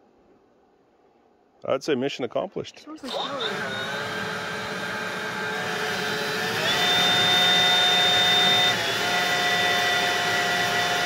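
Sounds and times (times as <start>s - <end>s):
small electric motor whining: 3.0s - 11.0s.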